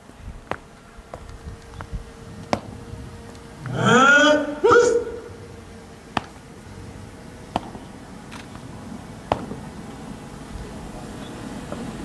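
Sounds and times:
sharp knocks: 0:06.1 - 0:06.4, 0:07.5 - 0:07.9, 0:09.3 - 0:09.6.

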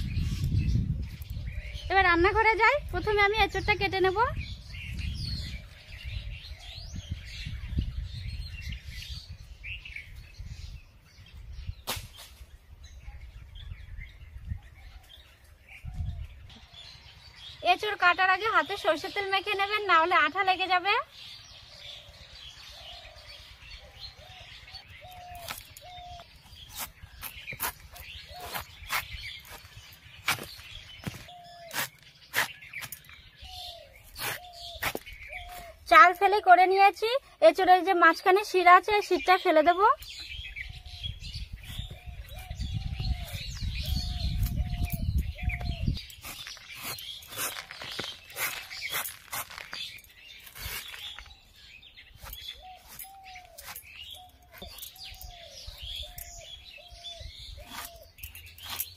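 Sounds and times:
birds chirping: 0:00.0 - 0:58.9
fruit cut on blade crunching: 0:26.6 - 0:30.6, 0:34.1 - 0:35.7, 0:46.1 - 0:51.4, 0:52.2 - 0:54.8, 0:57.6 - 0:58.9.

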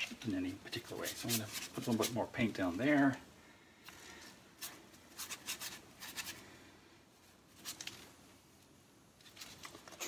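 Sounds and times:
paintbrush scratching on board: 0:00.8 - 0:02.3, 0:04.6 - 0:06.3.

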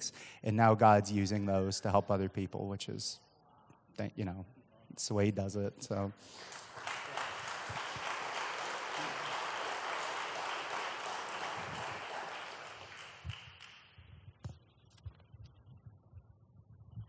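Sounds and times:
congregation applauding: 0:06.2 - 0:14.0.

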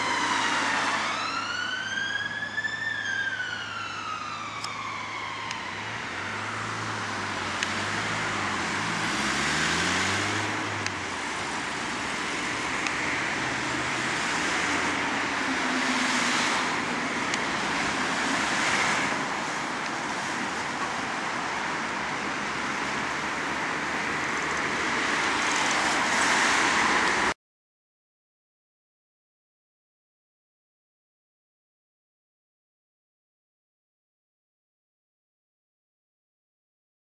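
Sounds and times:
ambulance siren wailing: 0:00.0 - 0:09.3, 0:11.1 - 0:19.9
cars passing: 0:03.4 - 0:27.4
engine speeding up: 0:04.5 - 0:19.6.

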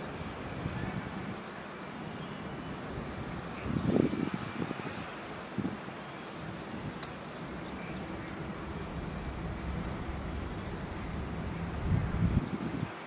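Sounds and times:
low outdoor rumble: 0:02.2 - 0:04.0, 0:06.4 - 0:12.8.

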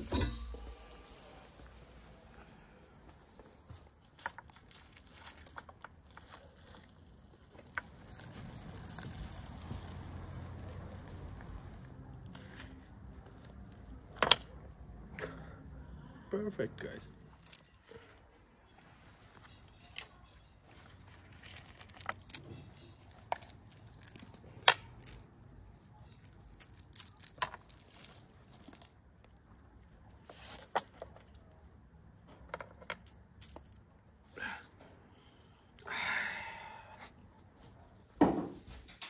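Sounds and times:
chains clinking and jangling: 0:05.0 - 0:05.8, 0:17.2 - 0:17.8, 0:21.0 - 0:23.1, 0:23.7 - 0:25.4, 0:26.1 - 0:28.3, 0:30.3 - 0:31.1, 0:33.0 - 0:33.8.

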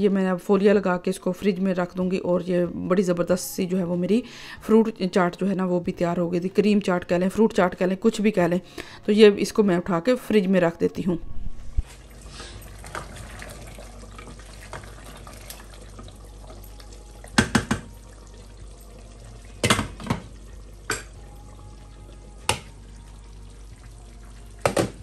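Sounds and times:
water running from a tap: 0:12.1 - 0:25.0
dishes knocking: 0:17.4 - 0:17.9, 0:19.6 - 0:20.3, 0:24.6 - 0:25.0.

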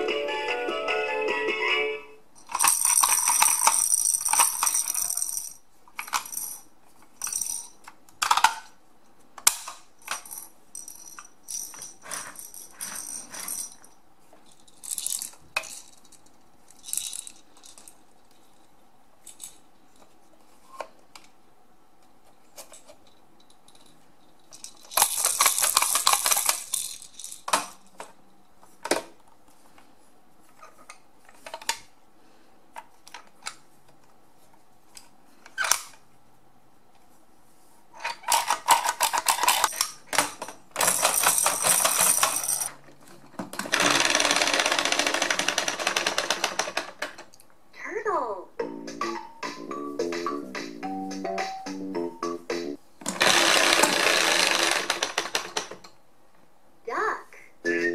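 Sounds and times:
plastic toy blocks rattling: 0:02.4 - 0:08.8, 0:09.5 - 0:18.5, 0:23.7 - 0:28.1, 0:38.0 - 0:47.3, 0:53.0 - 0:55.9.

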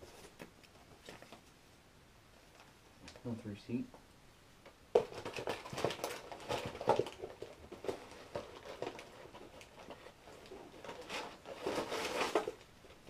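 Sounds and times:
rustling packaging in cardboard box: 0:05.0 - 0:13.0.

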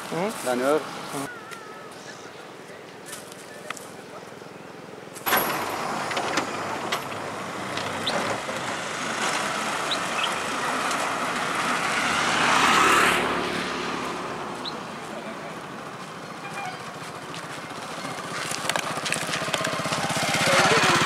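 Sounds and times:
motorbike passing by: 0:05.3 - 0:21.0.

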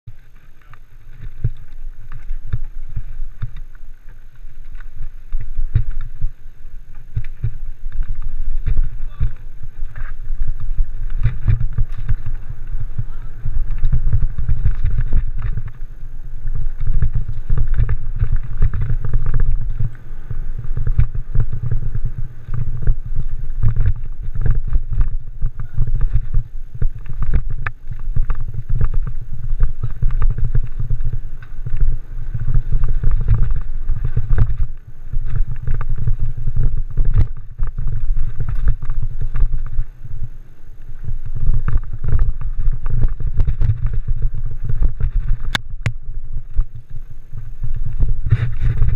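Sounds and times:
tyres rumbling on dirt trail: 0:00.0 - 0:48.9
wind on microphone: 0:00.0 - 0:48.9
bike clicks and rattles: 0:00.1 - 0:48.9.

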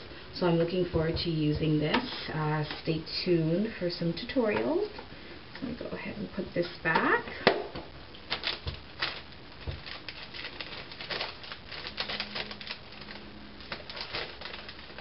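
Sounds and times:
plastic clicks and packaging rustles: 0:00.6 - 0:03.0, 0:06.9 - 0:15.0.

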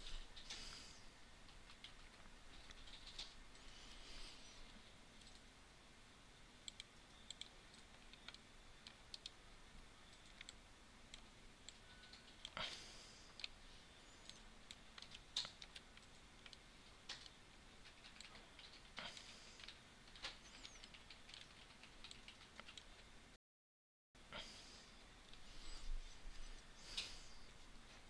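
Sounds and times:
low room noise: 0:00.0 - 0:23.4, 0:24.2 - 0:28.0
mouse and keyboard clicks: 0:06.6 - 0:09.4, 0:10.1 - 0:12.6, 0:14.2 - 0:22.9.

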